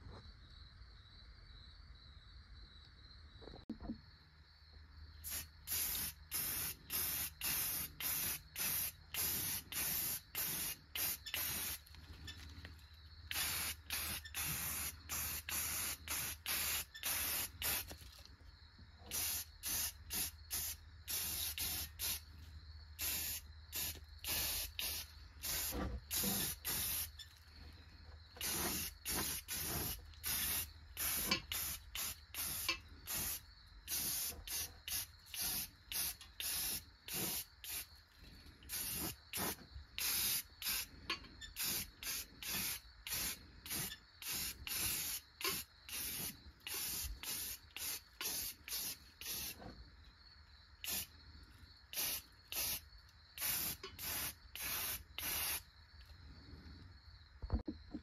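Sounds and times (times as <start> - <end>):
aerosol can spraying: 5.3 - 11.9, 13.3 - 18.0, 19.1 - 22.2, 23.0 - 27.2, 28.4 - 37.9, 38.7 - 40.9, 41.6 - 49.6, 50.8 - 51.1, 52.0 - 52.8, 53.4 - 55.6.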